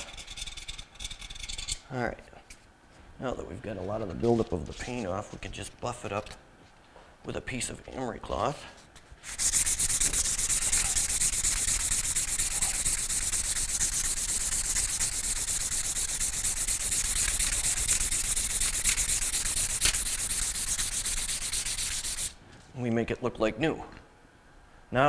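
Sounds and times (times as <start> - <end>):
emery cloth rasping on metal shaft: 9.3 - 22.4.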